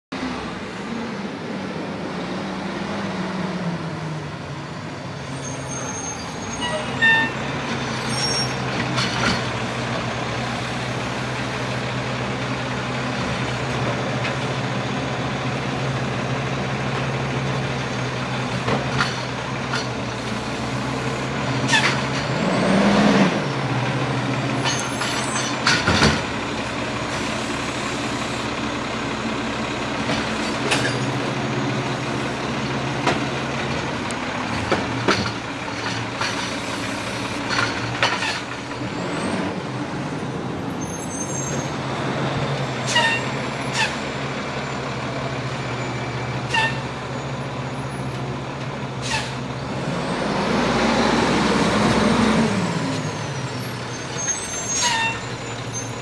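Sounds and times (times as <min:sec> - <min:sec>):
diesel truck engine running: 0:00.1 - 0:56.0
hydraulic arm clanking carts: 0:05.6 - 0:14.6, 0:16.9 - 0:22.6, 0:24.3 - 0:49.6
air brake hiss: 0:49.0 - 0:49.4.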